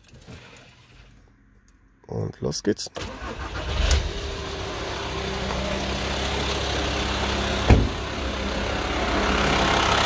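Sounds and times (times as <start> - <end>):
van engine idling: 4.1 - 10.0
loud thump: 7.7 - 8.0.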